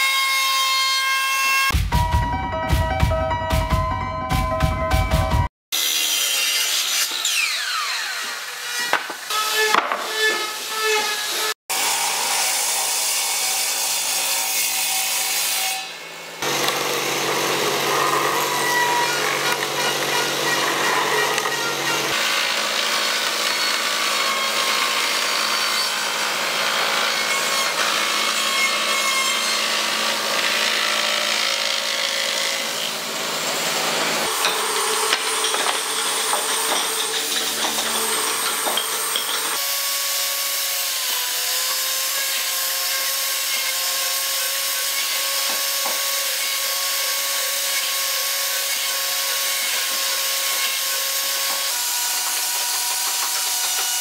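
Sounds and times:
table saw cutting wood: 0.0s - 1.7s, 5.7s - 54.0s
electric tool motor whining: 16.4s - 26.2s.

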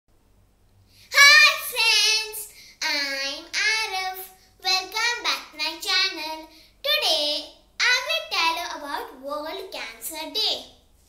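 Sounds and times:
boy singing short phrases: 1.1s - 6.5s.

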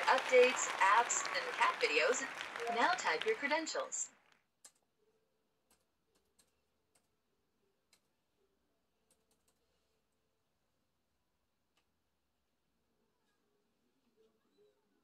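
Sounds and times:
laptop keyboard typing: 5.7s - 7.1s.

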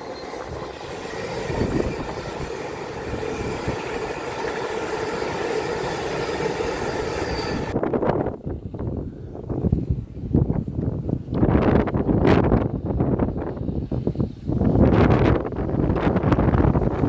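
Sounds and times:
train wheels rolling on rails: 0.0s - 8.1s
train diesel engines passing: 0.0s - 9.4s.

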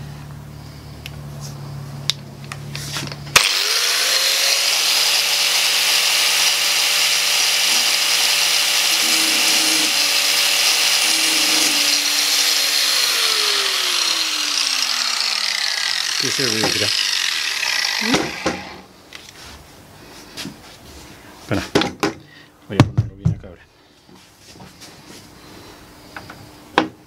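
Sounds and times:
angle grinder grinding steel: 2.8s - 18.9s.

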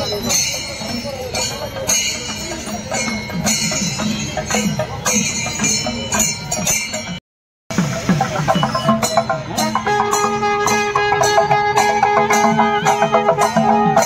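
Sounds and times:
jingling metal: 0.0s - 7.2s
rhythmic percussion music: 0.0s - 14.0s
fast drum strokes: 2.2s - 14.0s.

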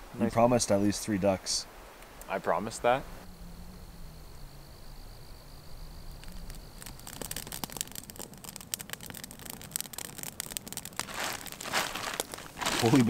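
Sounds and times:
campfire crackling and popping: 6.0s - 13.0s.

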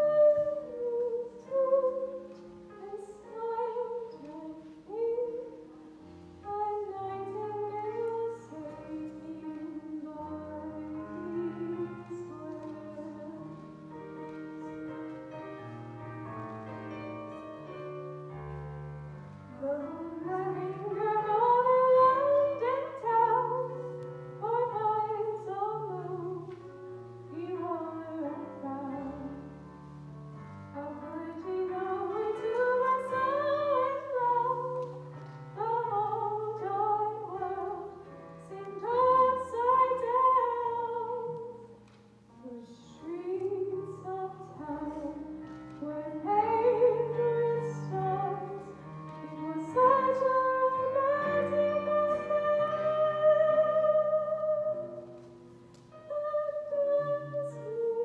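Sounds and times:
woman singing slow song: 0.0s - 5.8s, 42.4s - 55.0s, 56.0s - 58.0s.

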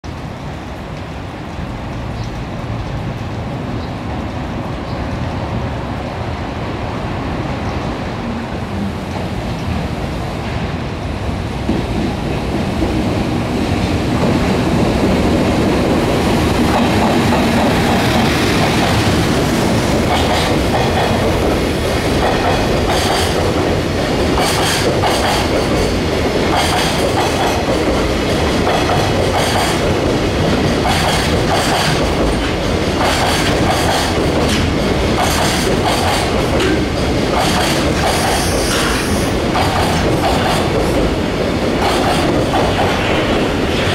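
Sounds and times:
train wheels rumbling on rail: 0.0s - 43.9s
wheels clacking over rail joints: 13.8s - 43.9s.

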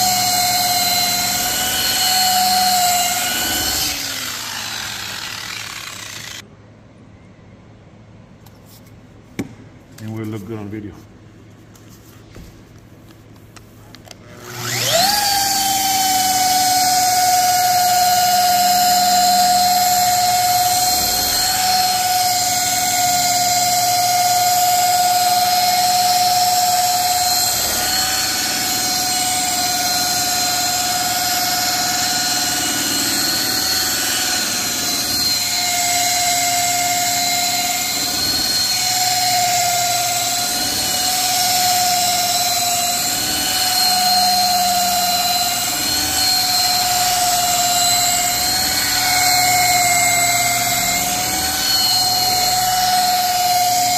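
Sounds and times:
electric polisher whining: 0.0s - 6.4s, 14.3s - 53.9s.

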